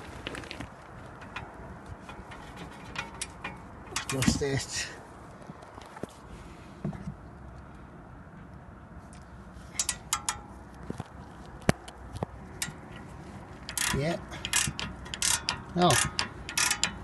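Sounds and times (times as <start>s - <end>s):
ratchet handle clicking: 9.8s - 10.5s, 12.6s - 17.0s.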